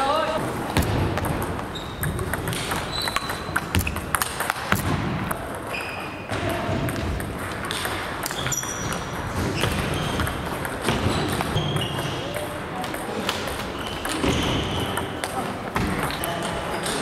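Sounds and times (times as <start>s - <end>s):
ping pong ball hitting paddles: 0.7s - 17.0s
distant table tennis clicks: 0.8s - 6.2s
shoes squeaking on gym floor: 1.6s - 4.1s, 5.7s - 6.3s, 7.8s - 12.3s, 13.7s - 15.2s.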